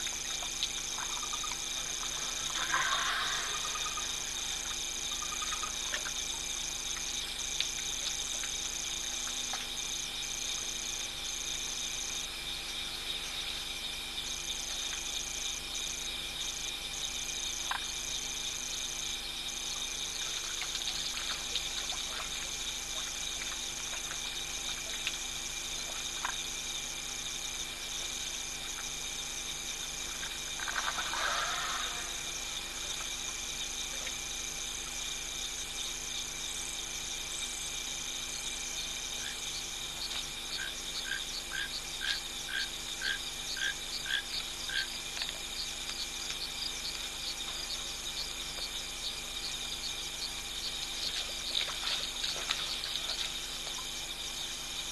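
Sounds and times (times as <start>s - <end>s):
night insects trilling: 0.0s - 54.9s.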